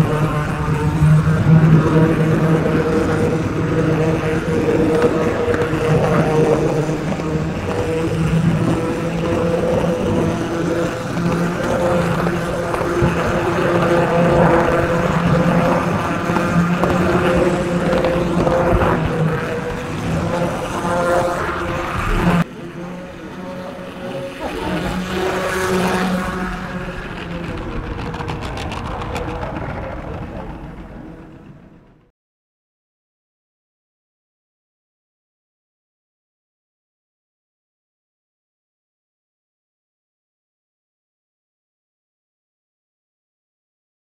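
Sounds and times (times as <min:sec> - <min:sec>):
model train wheels rumbling on rails: 0:00.0 - 0:32.1.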